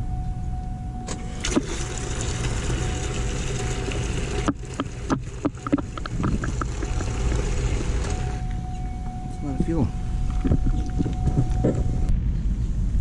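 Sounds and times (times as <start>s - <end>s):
fuel pump humming and whining: 0.0s - 12.2s
fuel rushing into bucket: 1.1s - 8.5s.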